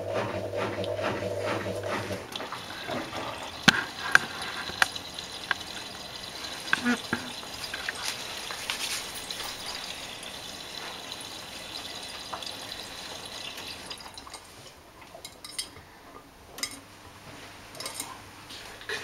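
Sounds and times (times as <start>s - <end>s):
washing machine drum turning: 0.0s - 14.4s
wet laundry splashing and knocking: 0.0s - 14.4s
water spraying into washing machine: 0.0s - 14.6s.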